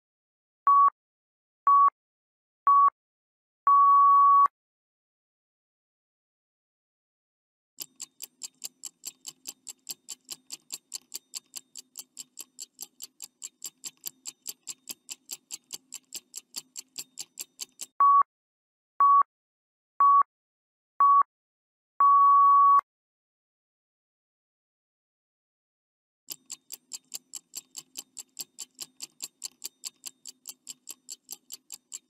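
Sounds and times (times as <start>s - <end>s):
longer final beep: 3.7s - 4.5s, 22.0s - 22.8s
fast timer ticking: 7.8s - 18.0s, 26.3s - 32.0s.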